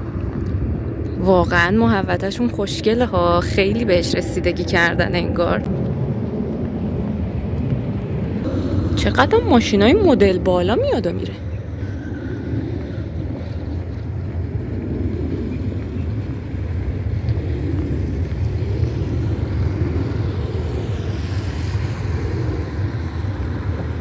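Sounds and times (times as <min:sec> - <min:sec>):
cars driving along road: 0:00.0 - 0:24.0.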